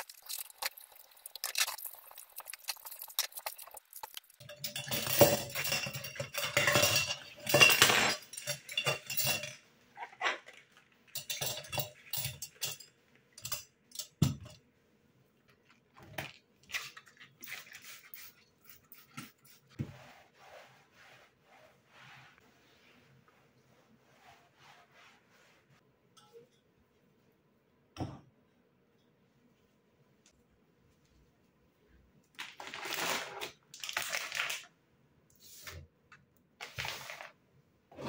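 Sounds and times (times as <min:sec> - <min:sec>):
dishes and cutlery clattering: 0:00.1 - 0:14.6.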